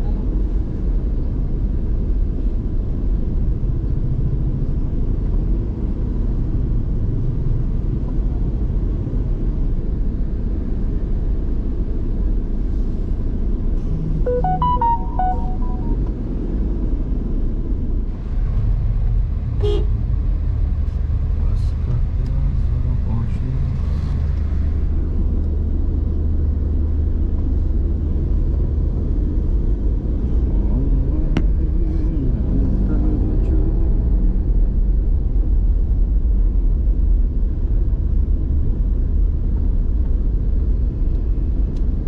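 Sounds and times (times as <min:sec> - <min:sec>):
car engine and road rumble: 0:00.0 - 0:42.0
short horn beep: 0:14.2 - 0:16.1
vehicle horn playing notes: 0:14.3 - 0:16.0.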